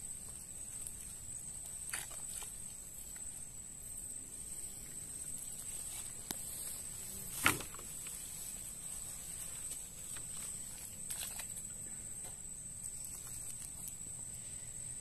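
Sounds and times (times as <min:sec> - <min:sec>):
net hauled through shallow water: 0:00.0 - 0:03.5, 0:07.4 - 0:11.8.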